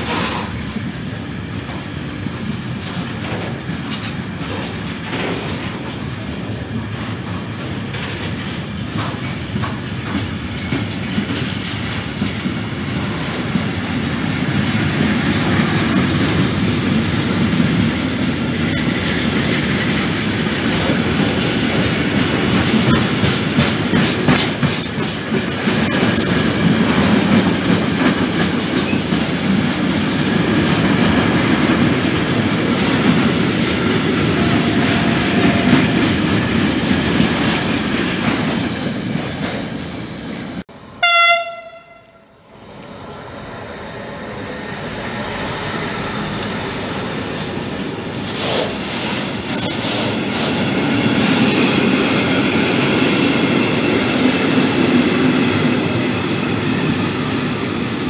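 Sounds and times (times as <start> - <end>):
freight train rumbling and clattering: 0.0 - 58.0
locomotive horn blast: 40.8 - 42.4.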